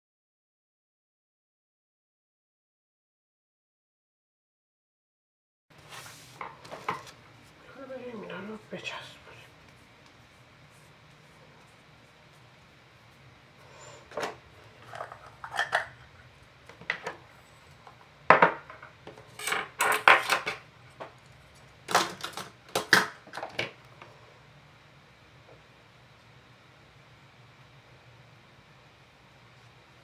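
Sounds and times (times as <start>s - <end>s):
lids clicking and clinking: 14.2s - 16.0s.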